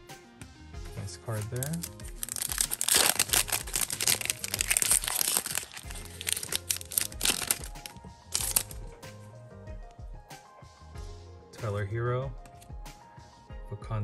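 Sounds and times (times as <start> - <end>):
background music: 0.0 - 14.0
foil wrapper crinkling: 1.3 - 8.8.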